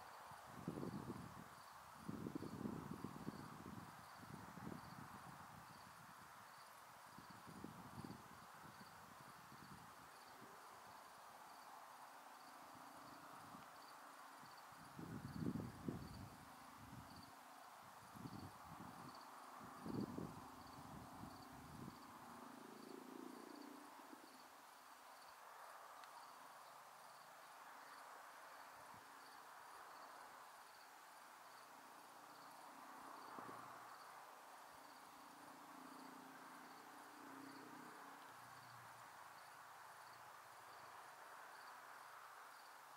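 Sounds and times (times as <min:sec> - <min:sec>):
cricket chirping: 0:00.0 - 0:42.9.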